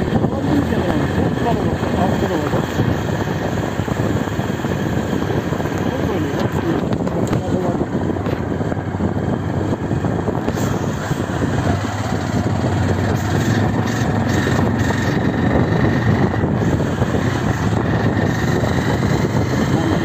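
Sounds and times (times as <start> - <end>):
loud rushing noise: 0.0 - 20.0
vehicle engine humming: 0.0 - 20.0.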